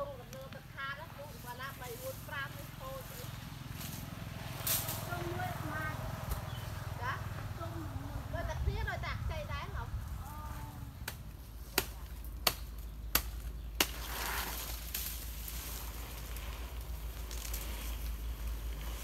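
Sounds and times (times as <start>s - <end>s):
rustling hiss: 0.2s - 11.6s, 13.8s - 19.0s
low wind rumble on microphone: 0.8s - 13.0s.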